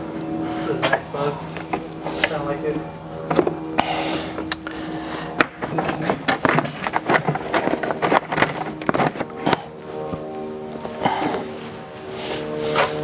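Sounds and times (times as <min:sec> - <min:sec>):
clicks knocks and scrapes of parts: 0:05.4 - 0:10.2.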